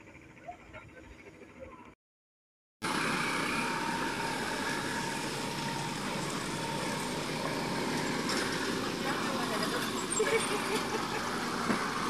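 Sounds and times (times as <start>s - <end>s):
traffic engine noise: 2.8s - 12.0s
tyres hissing on wet road: 2.8s - 12.0s.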